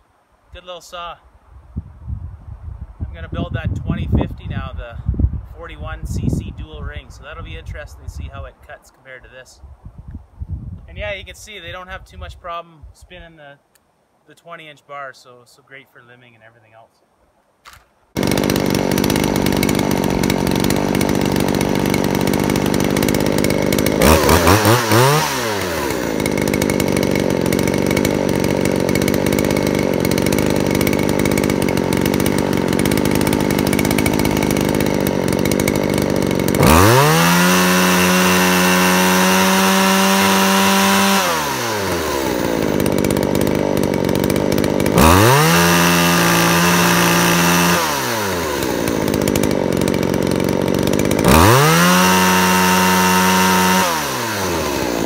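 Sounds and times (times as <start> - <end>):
chainsaw idling and revving: 18.2 - 55.0.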